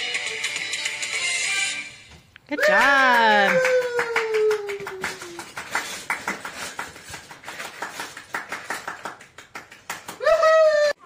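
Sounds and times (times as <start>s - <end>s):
man clapping hands: 2.6s - 10.4s.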